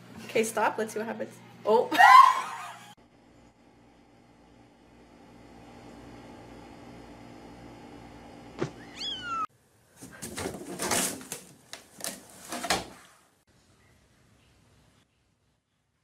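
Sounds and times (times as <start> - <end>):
cat meowing: 8.8 - 9.5
bumps and knocks in laundry hamper: 10.0 - 13.0.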